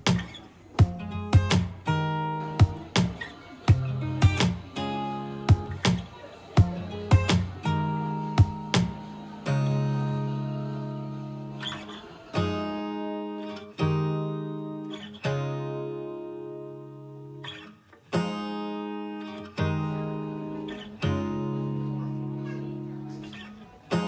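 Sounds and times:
acoustic guitar strumming chords: 0.0s - 24.0s.

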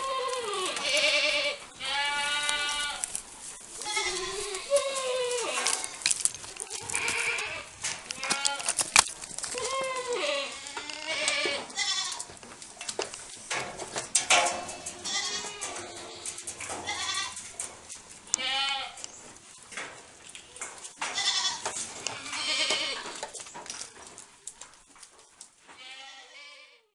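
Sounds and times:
goats bleating: 0.0s - 12.4s, 14.6s - 17.5s, 18.3s - 19.1s, 21.1s - 23.2s, 25.8s - 26.9s.

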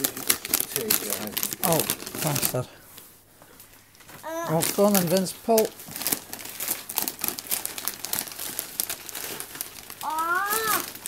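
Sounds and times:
gift wrap crinkling and tearing: 0.0s - 3.0s, 4.2s - 11.0s
voice-like call: 10.0s - 10.9s.

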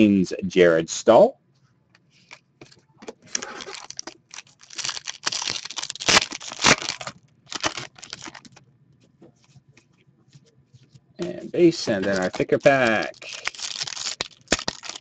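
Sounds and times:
wrappers tearing and crinkling: 3.3s - 8.6s, 11.8s - 15.0s.

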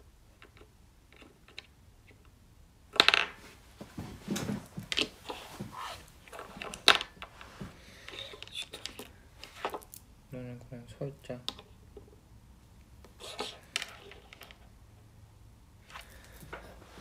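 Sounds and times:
figurines clacking on tabletop: 2.9s - 3.4s, 6.3s - 7.4s.

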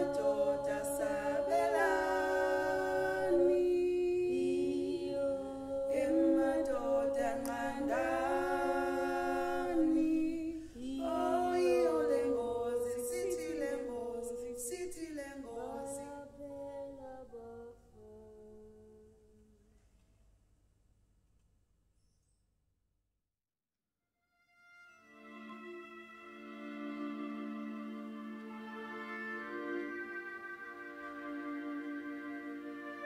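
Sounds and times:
voices singing in harmony: 0.0s - 18.6s.

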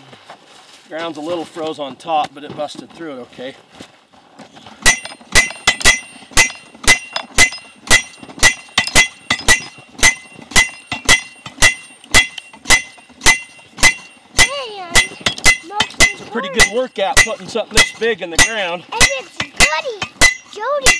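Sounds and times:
slide hammer clanging on metal: 4.8s - 20.9s.

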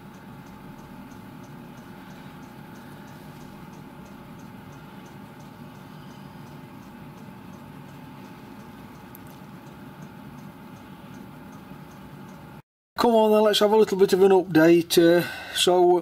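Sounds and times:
faint steady tone: 0.0s - 12.5s
faint high ticking: 0.0s - 12.6s
low hum: 0.0s - 12.6s.

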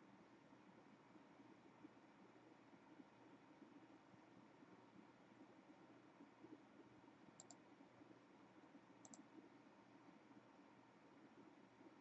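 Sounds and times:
quiet double clicks: 7.4s - 7.6s, 9.0s - 9.2s.

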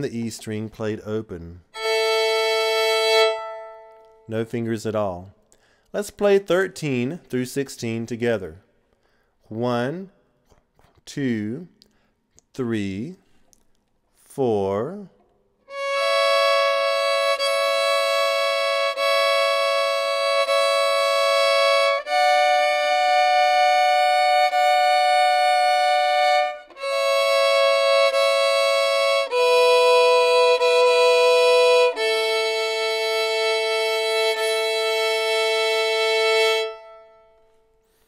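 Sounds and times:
fiddle playing double stops: 1.8s - 4.3s, 15.7s - 38.0s.

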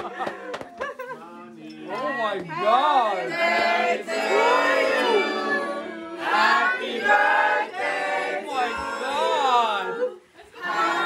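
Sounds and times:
voices singing together: 2.5s - 11.0s.

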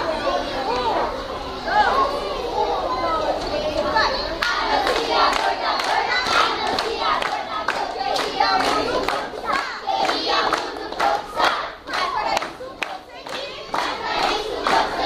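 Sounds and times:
children singing: 0.0s - 15.0s
hands clapping in rhythm: 4.4s - 15.0s.

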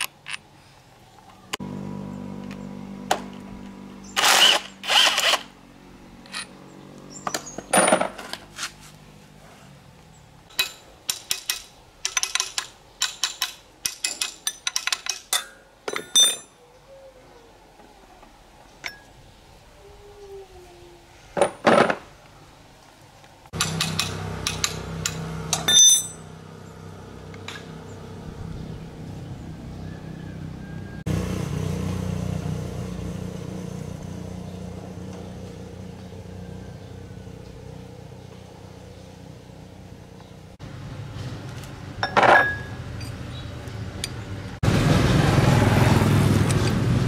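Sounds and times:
steel parts clinking: 10.5s - 16.6s, 23.6s - 26.3s, 42.0s - 43.3s.

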